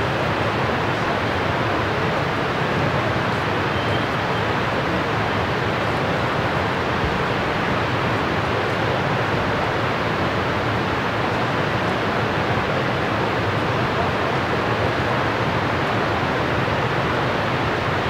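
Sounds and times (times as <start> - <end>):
river water rushing: 0.0 - 18.0.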